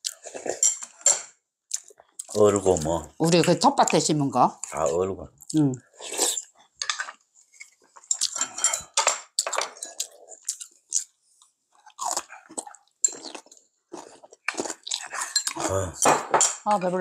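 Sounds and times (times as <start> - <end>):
chewing: 0.0 - 1.0, 1.7 - 4.0, 4.6 - 16.0
people slurping soup: 6.0 - 6.5, 12.1 - 16.0.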